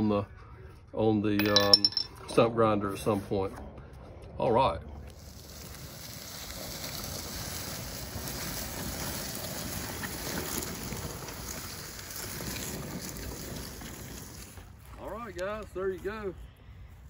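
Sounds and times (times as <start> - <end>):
wheels rolling over dry leaves: 5.0 - 16.3
wind noise on microphone: 5.5 - 14.6.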